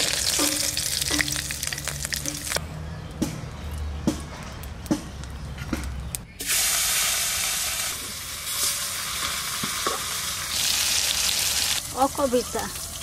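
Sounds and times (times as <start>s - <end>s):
fish frying in oil: 0.0s - 2.6s, 6.5s - 13.0s.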